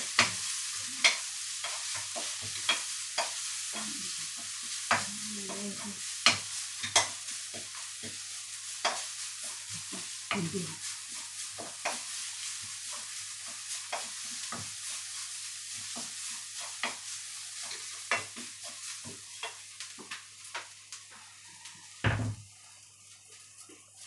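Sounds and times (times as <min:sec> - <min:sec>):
stir-fry sizzling in wok: 0:00.0 - 0:24.0
loud thump: 0:22.0 - 0:22.4.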